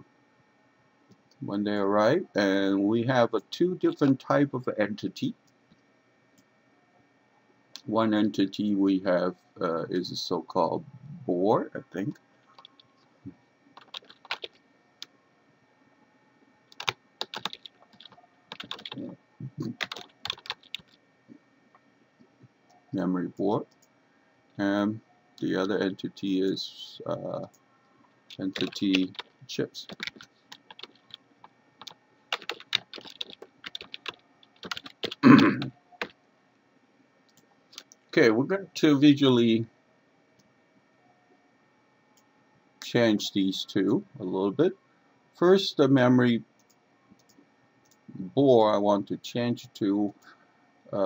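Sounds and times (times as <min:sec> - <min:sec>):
computer keyboard typing: 0:12.5 - 0:12.9, 0:13.8 - 0:15.1, 0:16.7 - 0:21.0, 0:28.3 - 0:36.2.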